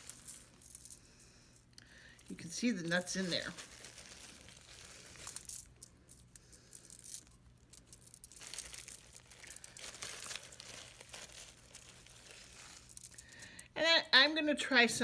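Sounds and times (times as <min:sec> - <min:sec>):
aluminium foil rustling: 0:00.0 - 0:13.6
plastic bag crinkling: 0:00.0 - 0:13.7.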